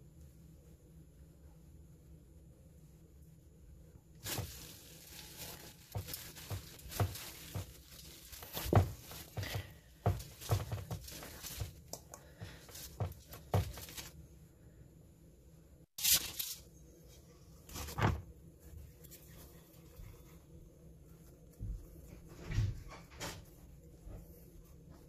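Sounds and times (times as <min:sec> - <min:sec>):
dough squelching and tearing: 0:04.2 - 0:14.2.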